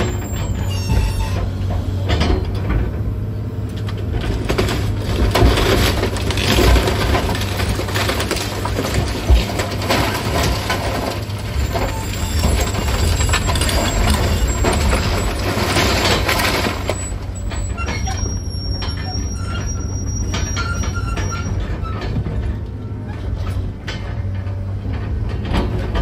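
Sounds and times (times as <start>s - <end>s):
high metallic squeal: 0.0s - 1.5s, 11.6s - 22.1s
excavator engine running: 0.0s - 26.0s
debris knocking and crunching: 3.8s - 19.1s.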